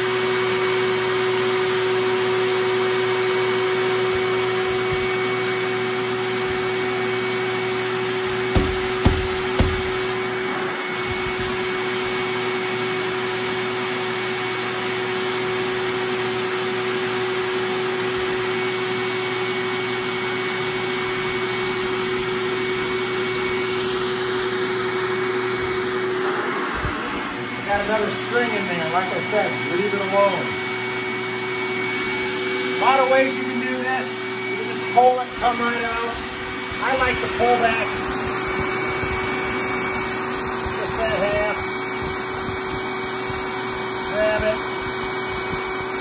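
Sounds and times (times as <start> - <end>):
electric blower fan whirring: 0.0 - 46.0
quick knocks: 8.5 - 10.1.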